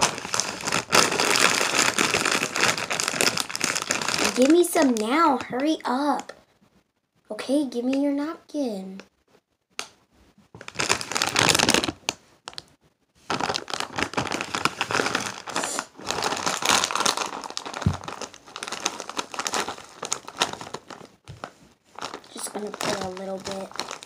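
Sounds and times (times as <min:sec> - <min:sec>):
chip bag crinkling: 0:00.0 - 0:05.5, 0:10.6 - 0:12.6, 0:13.3 - 0:24.0.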